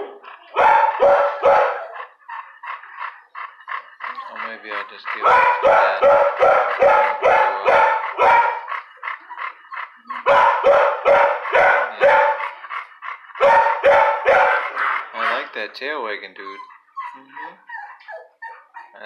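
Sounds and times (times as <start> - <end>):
dog barking: 0.0 - 2.2, 4.3 - 15.5.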